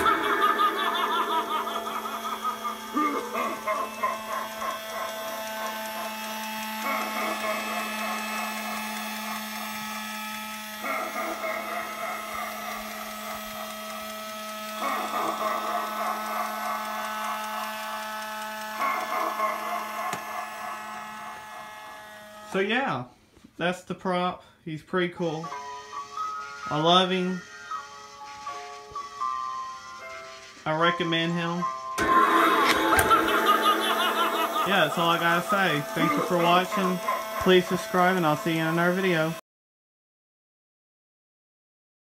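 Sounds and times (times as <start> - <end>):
animatronic prop mechanism: 0.0 - 22.2, 31.9 - 39.4.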